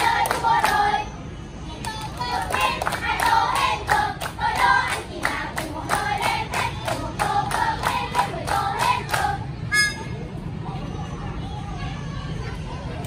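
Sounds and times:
hands clapping in steady beat: 0.0s - 0.9s, 1.8s - 9.4s
children singing in unison: 0.0s - 1.1s.

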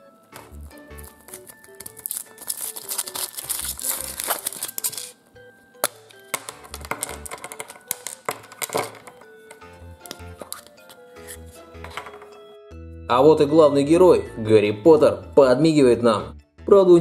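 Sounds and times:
background music with beat: 0.0s - 2.4s, 3.9s - 13.1s
foil wrapper crinkling: 0.3s - 5.2s, 5.8s - 9.3s
chocolate shell snapping: 0.4s - 5.2s, 5.8s - 10.9s
plastic capsule clicks: 5.8s - 10.9s.

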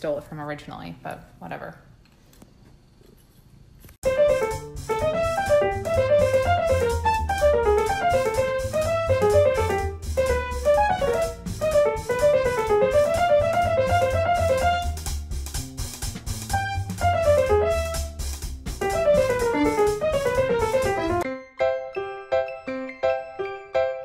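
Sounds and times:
bass and drum beat: 4.0s - 21.2s
bouncy keyboard melody: 4.0s - 24.0s.

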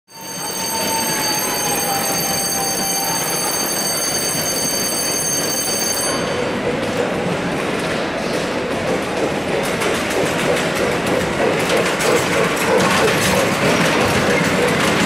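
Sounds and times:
level crossing bell ringing: 0.1s - 6.6s
background hubbub: 0.1s - 15.0s.

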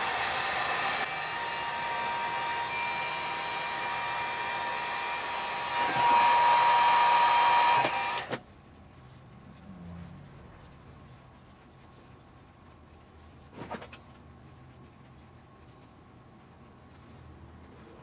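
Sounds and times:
heat gun blowing: 0.0s - 8.4s.

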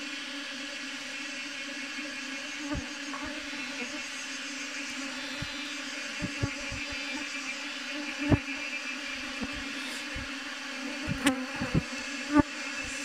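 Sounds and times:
honeybees buzzing: 0.0s - 13.0s
loud bee buzzes and bumps: 1.2s - 13.0s.

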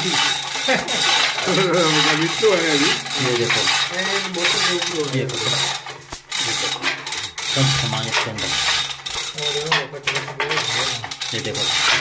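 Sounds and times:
chain hoist ratchet clicking: 0.0s - 12.0s.

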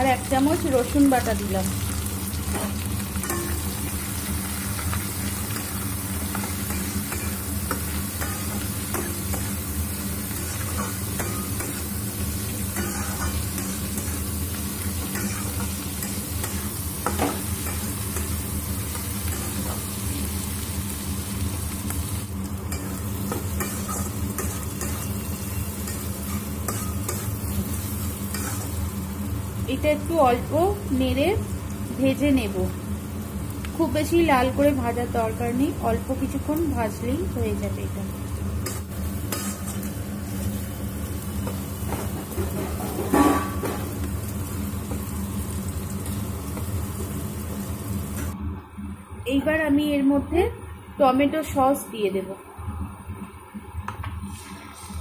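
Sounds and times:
food sizzling in hot oil: 0.0s - 49.8s, 54.2s - 55.0s
spatula scraping pan: 12.6s - 14.2s, 14.9s - 18.3s, 22.7s - 28.8s, 38.6s - 40.0s.

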